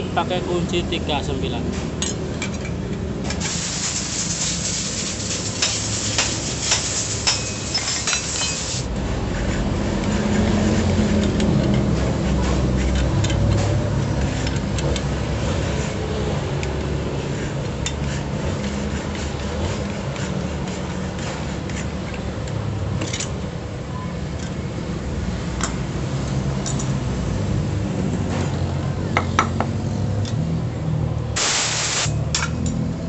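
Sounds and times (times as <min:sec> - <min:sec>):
hammer striking metal wrench: 0:05.6 - 0:08.7.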